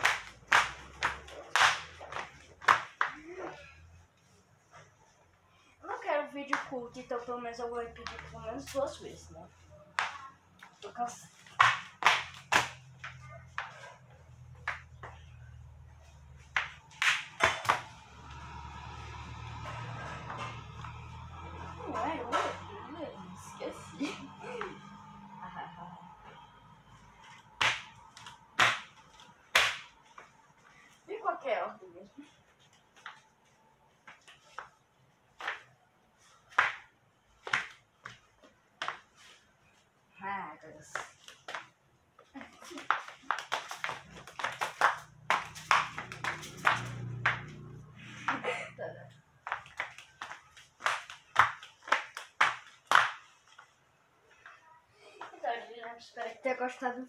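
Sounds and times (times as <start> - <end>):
flip-flops slapping on tiles: 0.0 - 5.1, 9.8 - 22.7, 27.0 - 31.0, 32.3 - 39.9, 40.8 - 48.6, 49.4 - 56.1.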